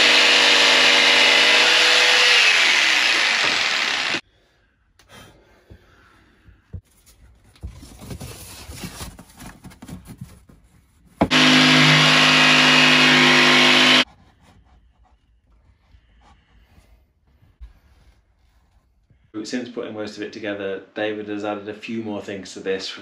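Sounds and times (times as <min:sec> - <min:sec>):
cordless drill running: 0:00.0 - 0:04.2, 0:11.3 - 0:14.0.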